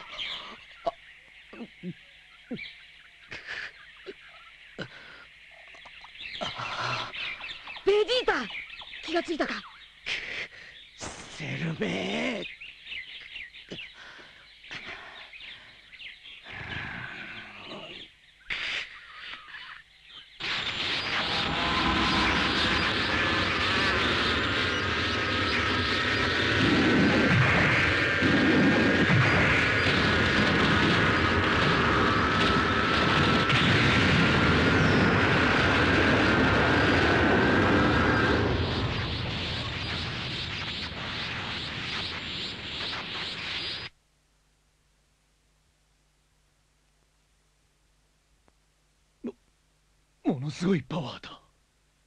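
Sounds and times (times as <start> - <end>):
high bird chirps: 5.4 - 10.1
high sustained whine: 20.4 - 43.9
rumbling roar: 20.5 - 39.5.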